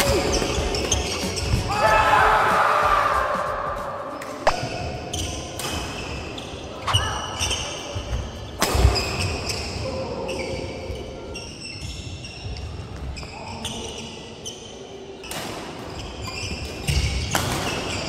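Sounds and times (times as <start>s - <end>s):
shoes squeaking on wooden floor: 0.0s - 1.7s, 6.0s - 14.6s
racket hitting shuttlecock: 16.9s - 18.0s.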